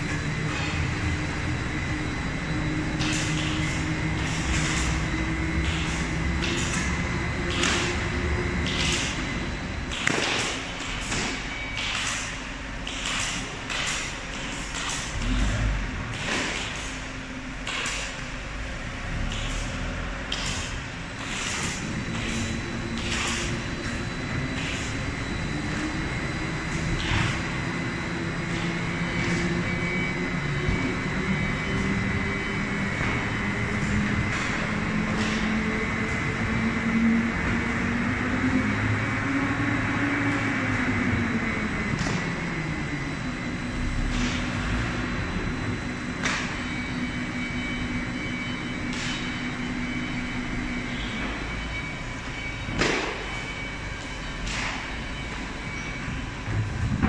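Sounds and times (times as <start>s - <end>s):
lathe motor hum: 18.4s - 48.5s.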